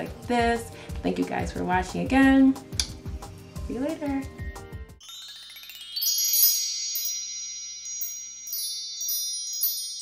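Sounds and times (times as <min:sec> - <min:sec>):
metal chimes ringing: 0:05.0 - 0:10.0.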